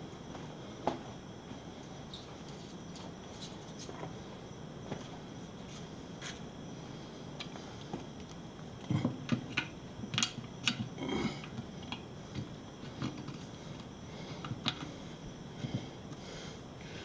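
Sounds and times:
small parts clicking and tapping: 8.2 - 14.9.

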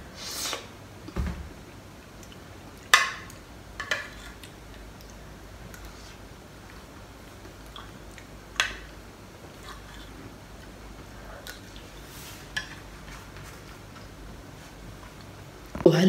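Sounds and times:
faint chewing: 3.8 - 8.9, 9.5 - 14.1.

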